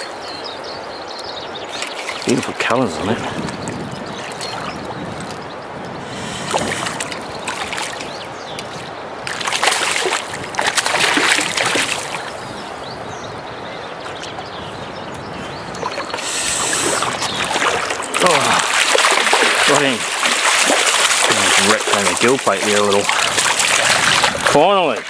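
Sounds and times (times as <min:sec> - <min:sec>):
running water: 0:01.0 - 0:25.0
fish splashing and thrashing: 0:01.7 - 0:05.5, 0:06.1 - 0:12.5, 0:15.4 - 0:24.6.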